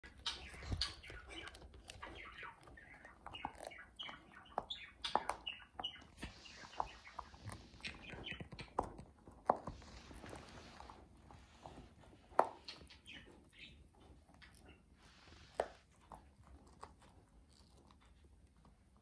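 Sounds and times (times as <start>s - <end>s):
high-pitched chirping squeaks: 0.0s - 8.8s, 12.6s - 15.0s
dog gnawing a bone: 0.0s - 14.8s, 15.5s - 19.0s.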